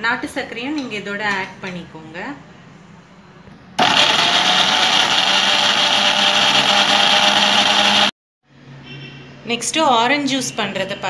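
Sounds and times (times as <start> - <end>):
electric blender running: 3.8 - 8.1.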